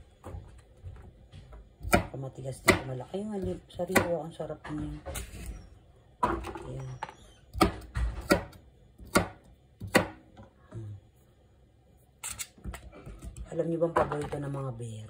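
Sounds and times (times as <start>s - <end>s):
knife chopping on cutting board: 1.8s - 4.1s, 7.6s - 10.2s.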